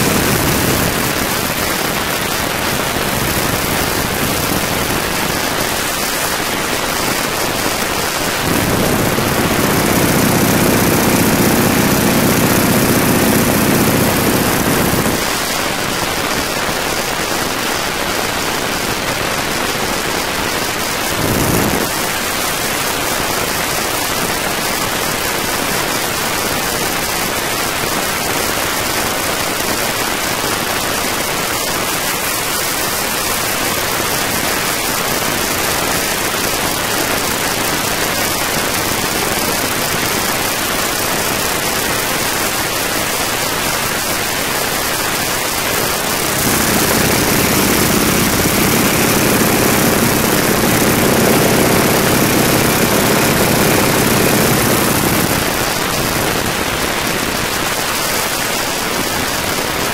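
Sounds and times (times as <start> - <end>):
radial engine droning: 0.0 - 1.6, 8.4 - 15.2, 46.1 - 55.5
wind rush on microphone: 0.0 - 15.6, 20.8 - 22.5, 45.6 - 56.8.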